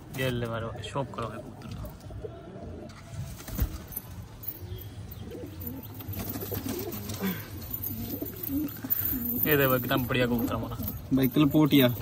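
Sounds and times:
pigeons cooing: 1.2 - 3.1, 3.9 - 11.1
pigeon wings flapping: 6.1 - 7.4.

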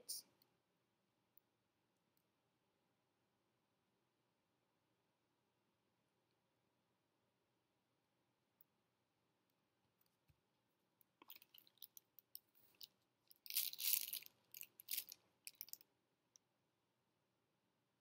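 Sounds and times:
plastic piping bag crinkling: 12.6 - 15.8.

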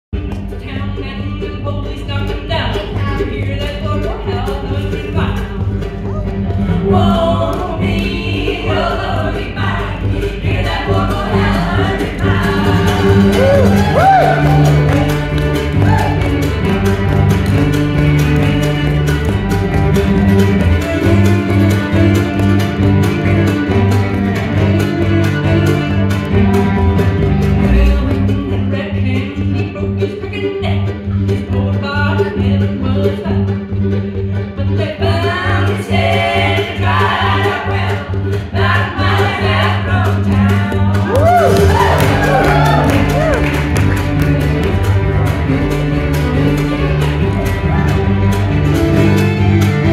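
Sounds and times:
acoustic string band playing: 0.2 - 49.9
voices singing: 6.6 - 16.5
sliding whoops: 13.2 - 15.0, 41.1 - 43.6.

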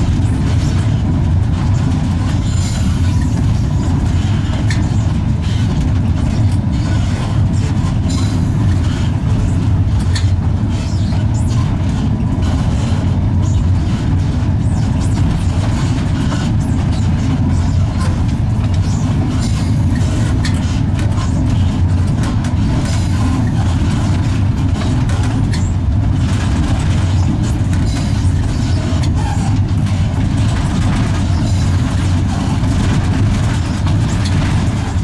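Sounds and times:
electric locomotive rumbling: 0.0 - 35.0
faint clicks and rattles: 11.7 - 35.0.

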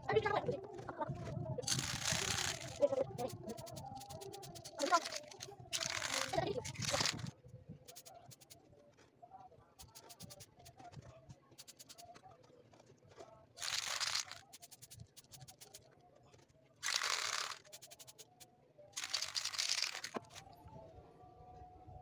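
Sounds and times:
spray paint can hissing: 1.6 - 7.3, 7.9 - 8.6, 9.8 - 10.6, 11.6 - 12.1, 13.6 - 15.8, 16.8 - 20.4.

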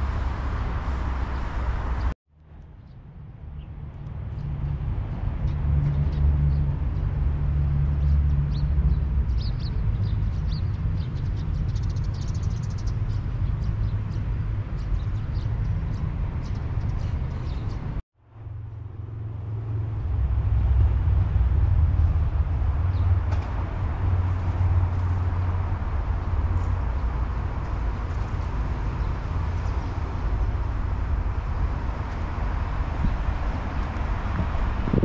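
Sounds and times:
steady low rumble: 0.0 - 11.8, 12.9 - 35.0
small birds chirping: 9.3 - 18.0.

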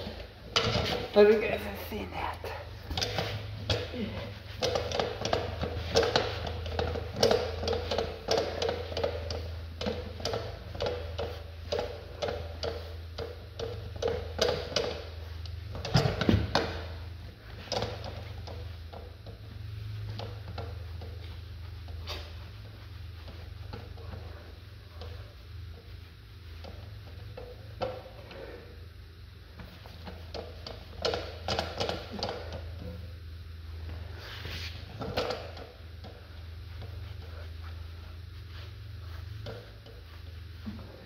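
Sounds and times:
steady low hum: 0.0 - 41.0
rag scrubbing a wheel rim: 34.1 - 41.0.

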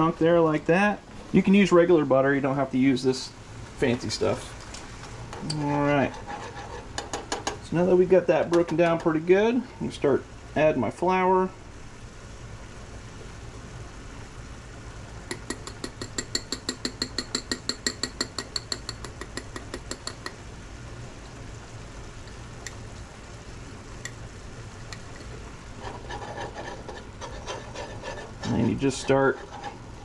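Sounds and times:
butter sizzling in a skillet: 2.8 - 10.8, 11.6 - 30.0
wire whisk clicking: 15.3 - 20.4.

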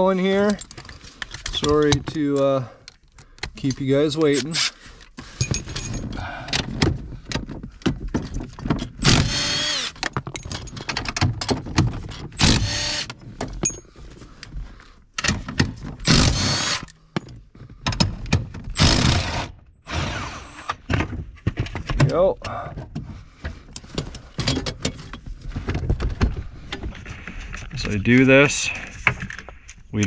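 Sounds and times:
clinks of tool and metal: 0.3 - 6.6, 10.0 - 11.5, 13.6 - 14.0, 16.7 - 17.4
impact driver whining: 9.0 - 10.0, 12.4 - 13.2, 16.0 - 17.2, 18.7 - 20.9.

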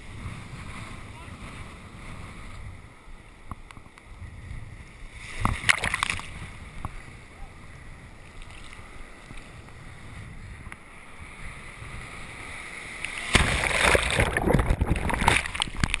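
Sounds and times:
wind buffeting microphone: 0.0 - 16.0
breaking waves: 4.2 - 16.0.

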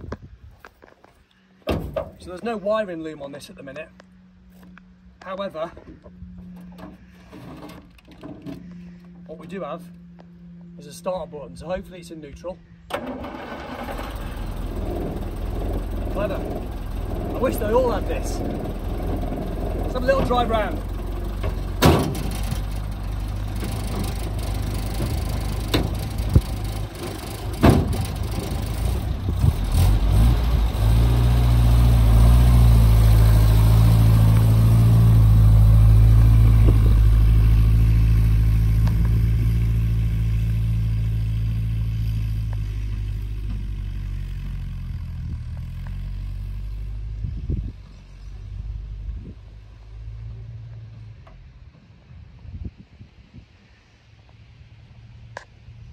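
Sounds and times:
car bonnet knocking shut: 1.7 - 2.2, 21.4 - 22.6, 27.6 - 28.2
car engine running: 12.7 - 50.8.

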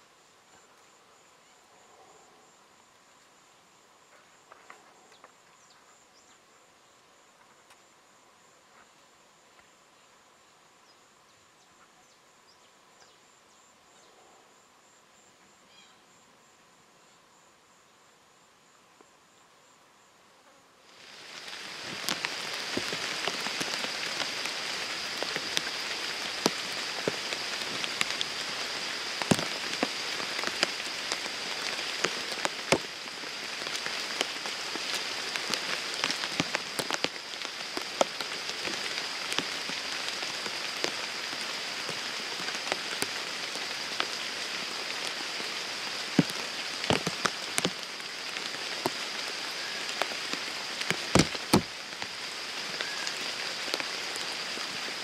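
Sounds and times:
rain falling on pond and grass: 20.8 - 55.0.

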